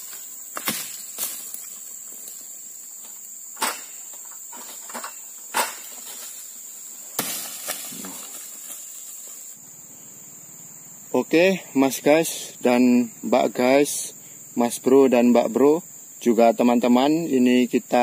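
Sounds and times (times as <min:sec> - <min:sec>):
high-pitched insect chorus: 0:00.0 - 0:18.0
sharp knocks: 0:03.6 - 0:04.0.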